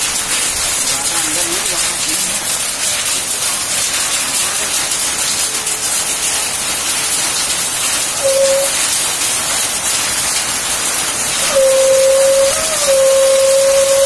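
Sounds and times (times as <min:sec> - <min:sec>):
heavy rain and hail: 0:00.0 - 0:14.0
short pitched call: 0:08.2 - 0:08.8, 0:11.4 - 0:14.0.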